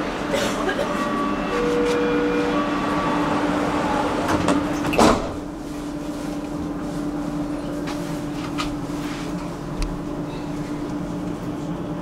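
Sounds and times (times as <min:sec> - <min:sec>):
metro train humming: 0:00.0 - 0:12.0
sliding doors shutting with thud: 0:04.2 - 0:05.5.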